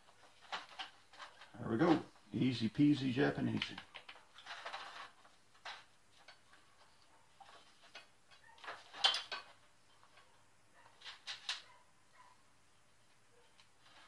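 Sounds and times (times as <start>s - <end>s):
tools clattering on metal bench: 7.9s - 9.6s.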